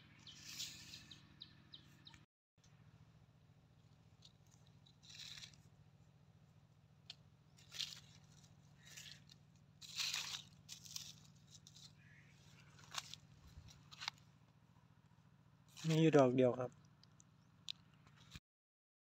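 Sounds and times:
dry leaves rustling and crunching: 0:00.2 - 0:01.0, 0:04.1 - 0:05.7, 0:07.6 - 0:14.2, 0:15.7 - 0:16.1.

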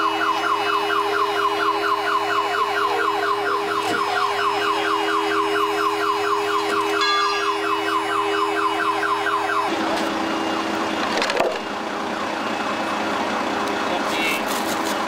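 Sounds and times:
electronic siren sweeping: 0:00.0 - 0:11.0
engine hum: 0:00.0 - 0:15.0.

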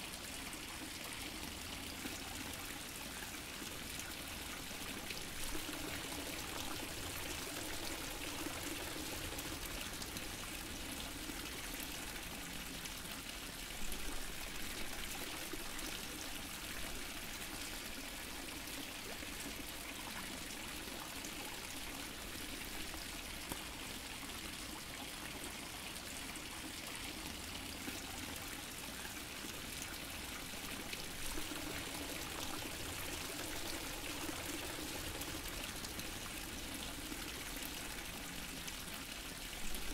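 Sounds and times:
water fountain splashing: 0:29.6 - 0:38.8.

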